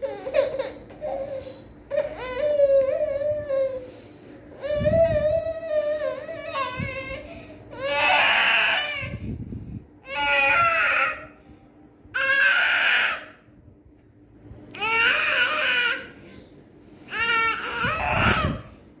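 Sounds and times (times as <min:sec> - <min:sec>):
baby shrieking: 0:07.8 - 0:09.2, 0:12.2 - 0:13.4, 0:17.1 - 0:18.6.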